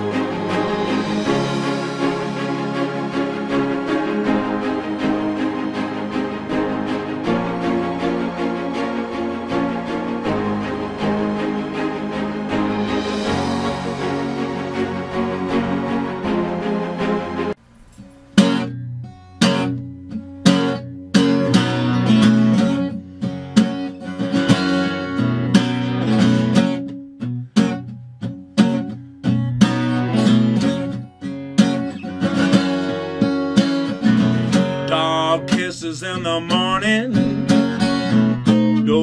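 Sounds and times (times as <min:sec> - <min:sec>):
acoustic guitar strumming chords: 0:00.0 - 0:39.0
background music: 0:00.0 - 0:39.0
man singing: 0:34.8 - 0:37.3, 0:38.8 - 0:39.0.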